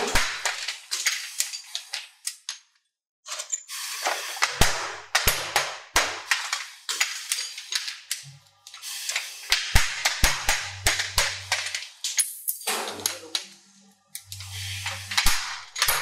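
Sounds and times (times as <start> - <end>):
metal parts clacking on workbench: 0.0 - 2.6, 6.3 - 8.8, 10.9 - 13.5.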